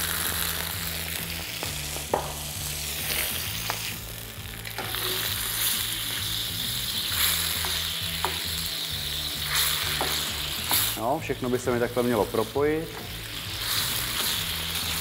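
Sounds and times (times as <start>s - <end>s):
sauce sizzling and bubbling in pan: 0.0s - 15.0s
spatula scraping and clicking on pan: 9.5s - 11.0s.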